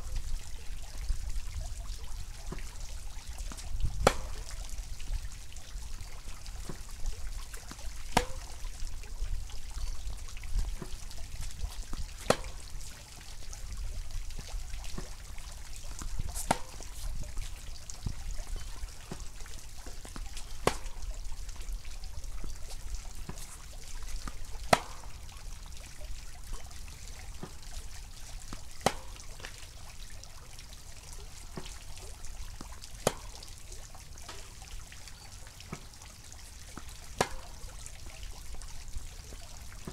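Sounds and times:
tennis racquet hitting ball: 4.0 - 4.6, 7.7 - 8.6, 11.6 - 12.8, 16.3 - 17.0, 20.1 - 20.9, 24.2 - 25.1, 28.5 - 29.2, 37.2 - 37.6.

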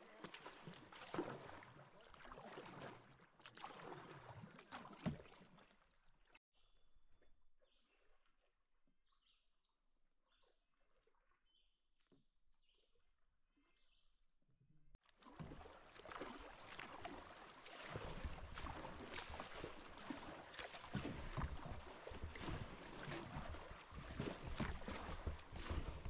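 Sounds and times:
water swishing around paddles: 0.0 - 6.4, 15.0 - 26.0
paddle knocks on hull: 20.6 - 26.0.

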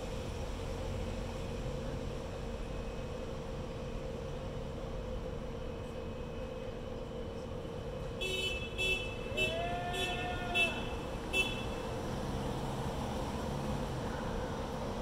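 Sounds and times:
traffic noise: 0.0 - 15.0
short high car horn toots: 8.2 - 11.8
long low car horn honk: 8.2 - 12.0.

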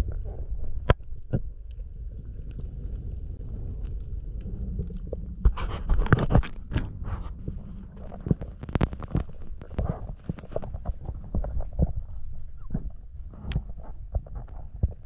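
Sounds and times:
low rumble of water: 0.0 - 15.0
sharp underwater clicks and knocks: 0.1 - 12.0.

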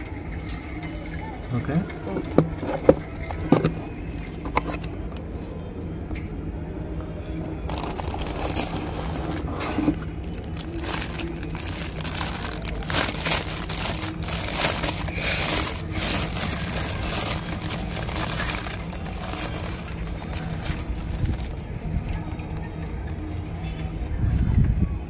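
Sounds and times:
plastic bag crinkling: 7.7 - 21.6.

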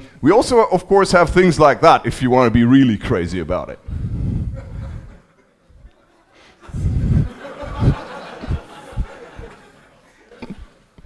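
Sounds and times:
audience laughing: 4.6 - 11.0.

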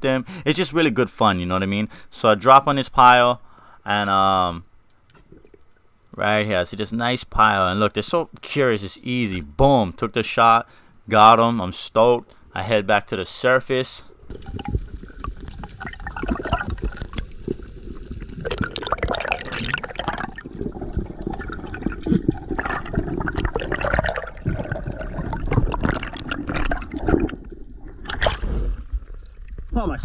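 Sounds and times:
water rushing and bubbling: 14.2 - 29.7.

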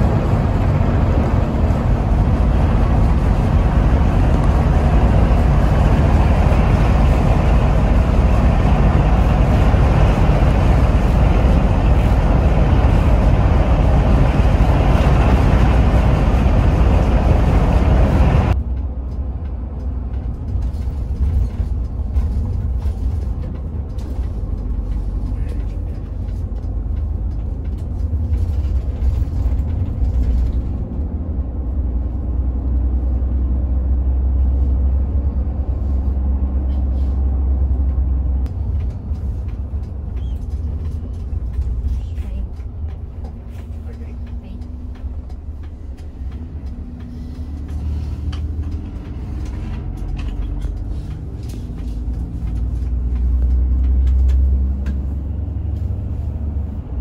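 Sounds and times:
bus engine rumble: 0.0 - 57.0
road and tyre hiss: 32.4 - 57.0.

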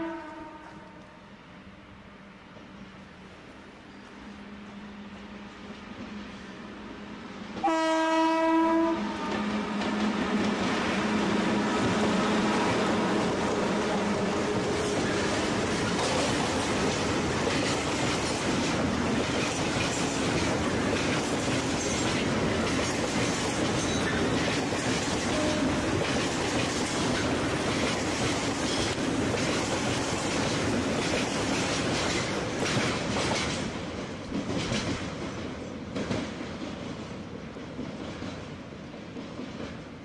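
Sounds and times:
train wheels clattering on rails: 8.8 - 40.0.

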